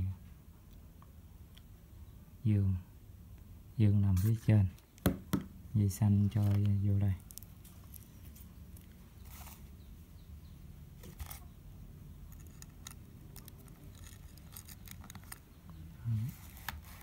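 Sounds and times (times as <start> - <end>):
plastic parts clicking and rattling: 12.3 - 15.5.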